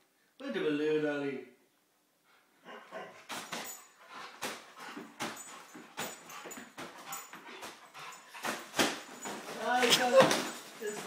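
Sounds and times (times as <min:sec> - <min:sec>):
dog jaws batting balloon: 0:03.3 - 0:10.7.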